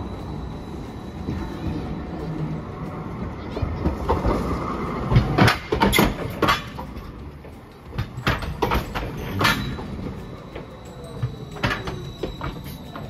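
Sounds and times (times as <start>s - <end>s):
tram wheels clacking over rail joints: 0.0s - 13.0s.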